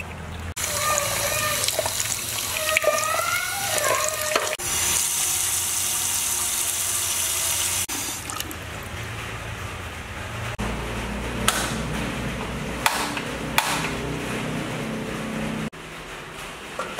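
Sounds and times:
tap water rinsing in a bowl: 0.0s - 9.4s
water stream into metal pot: 0.0s - 9.4s.

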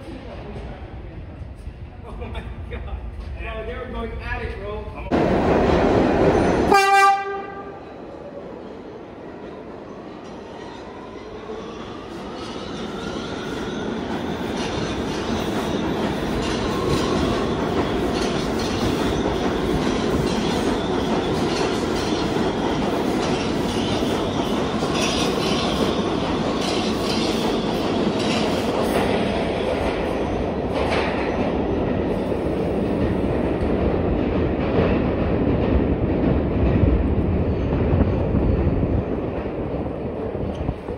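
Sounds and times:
train wheels clickety-clack: 12.1s - 40.9s.

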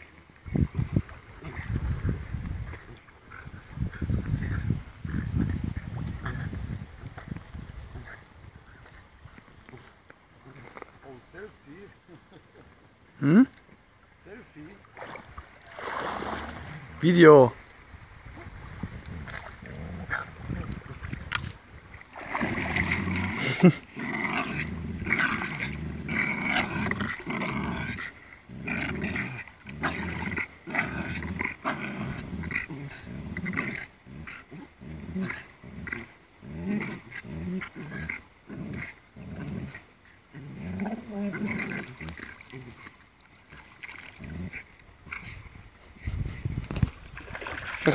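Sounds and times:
dogs growling: 18.4s - 20.8s, 22.2s - 43.0s.

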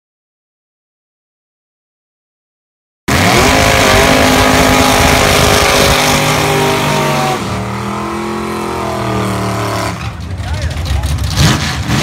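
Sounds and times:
car engine at high revs: 3.1s - 12.0s.

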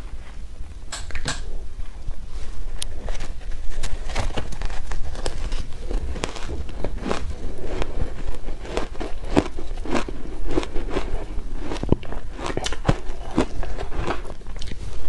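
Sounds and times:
chewing and crunching ice: 3.2s - 15.0s.

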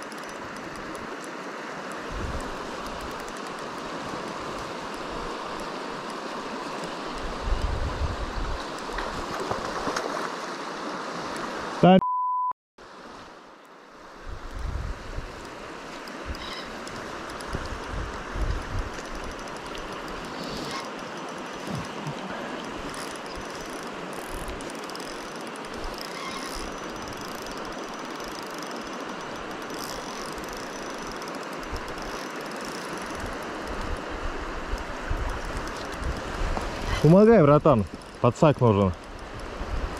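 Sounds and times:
fast river water rushing: 0.0s - 11.9s, 15.2s - 39.9s
wind bumps on microphone: 2.1s - 2.6s, 7.3s - 9.8s, 14.3s - 15.4s, 17.5s - 19.3s, 33.8s - 37.1s
censor bleep: 12.0s - 12.6s
fishing reel cranking: 22.6s - 33.5s.

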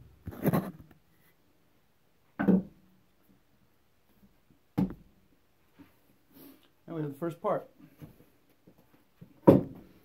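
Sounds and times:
wooden boards knocking on workbench: 9.3s - 9.9s.

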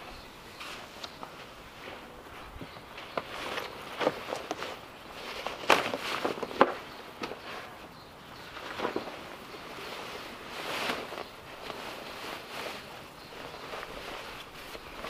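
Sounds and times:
cloth rustling and rubbing: 8.6s - 15.0s.

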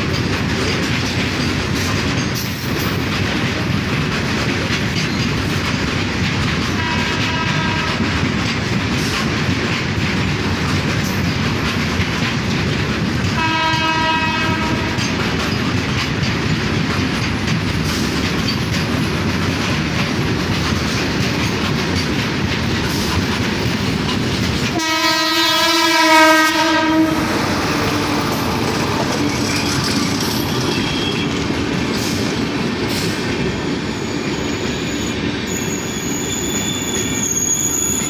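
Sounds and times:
freight wagons clattering on rails: 0.0s - 33.8s
passing passenger train: 0.0s - 38.0s
train horn: 6.8s - 8.2s, 13.4s - 15.1s, 24.7s - 28.4s
high-pitched wheel squeal: 30.3s - 31.3s, 33.9s - 38.0s.

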